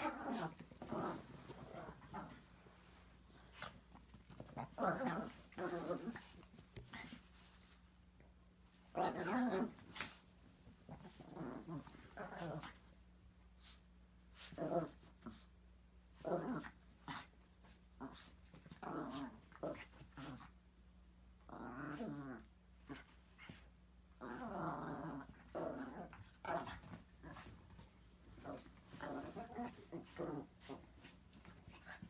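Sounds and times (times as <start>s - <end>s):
small dogs growling: 0.0s - 2.6s, 3.3s - 7.3s, 8.9s - 10.2s, 10.8s - 12.9s, 18.0s - 20.5s, 21.4s - 32.0s.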